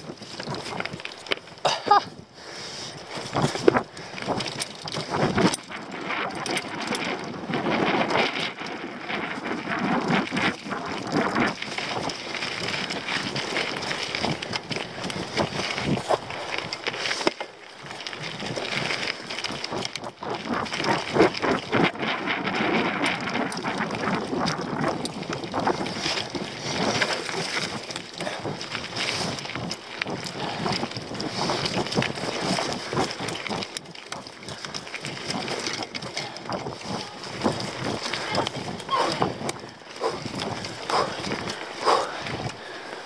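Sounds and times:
mountain bike rattling over stones: 0.0s - 43.0s
wind rushing over microphone: 1.9s - 43.0s.

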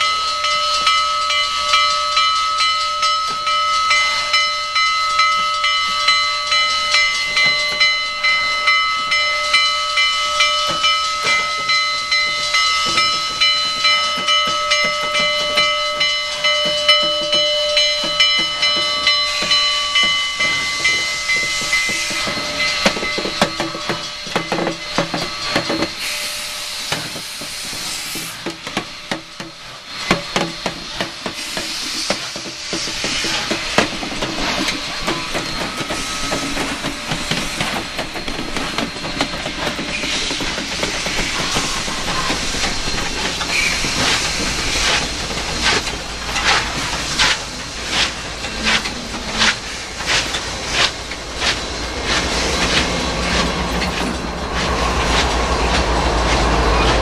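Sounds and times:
locomotive bell ringing: 0.0s - 57.0s
steam hissing: 0.0s - 57.0s
puffs of escaping steam: 25.2s - 53.6s.

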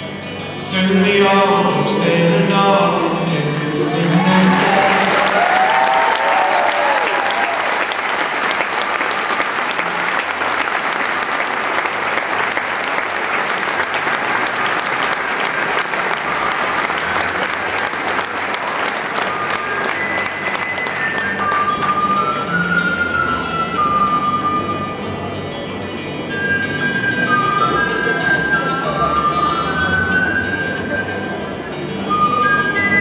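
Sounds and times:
crowd applauding: 3.9s - 22.2s.

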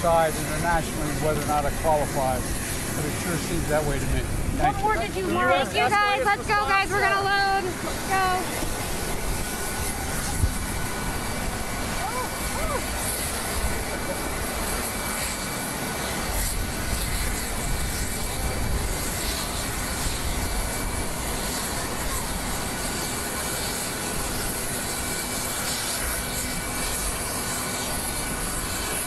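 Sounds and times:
wind buffeting microphone: 0.0s - 14.9s, 16.1s - 23.1s
jet engines whining: 0.0s - 29.0s.

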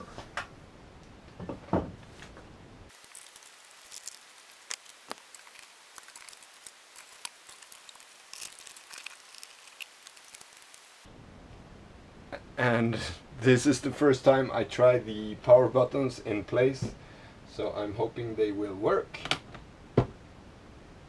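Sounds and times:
cables clicking and rustling: 2.9s - 10.9s.

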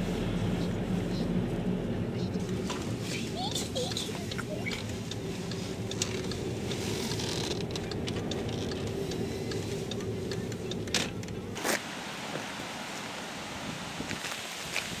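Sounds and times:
faint hum: 0.0s - 7.9s
car engine and road rumble: 0.0s - 15.0s.

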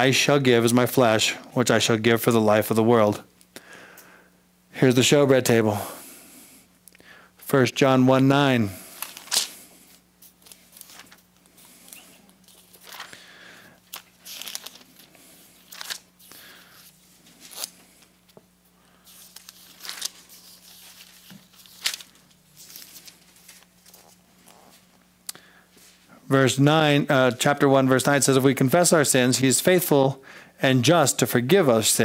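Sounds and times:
thin pages rustling: 8.9s - 13.2s, 13.9s - 18.4s, 19.0s - 24.9s.

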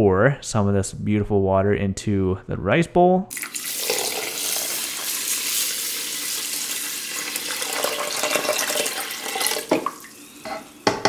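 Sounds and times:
water pouring onto rice: 3.3s - 10.2s.

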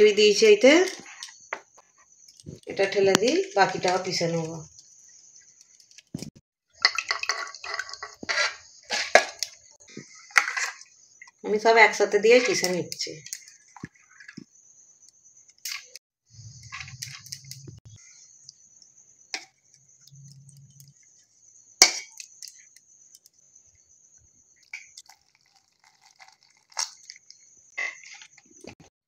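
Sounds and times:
water pouring into a jar: 6.8s - 8.3s, 24.6s - 27.4s
wet rice squishing: 24.6s - 27.3s.

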